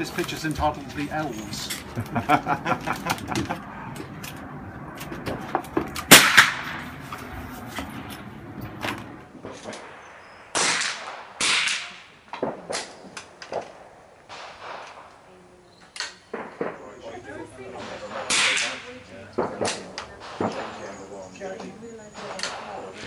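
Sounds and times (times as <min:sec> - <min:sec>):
rifle shots: 0:05.9 - 0:07.0, 0:09.3 - 0:15.3, 0:16.3 - 0:16.9, 0:17.8 - 0:21.0, 0:22.2 - 0:23.0.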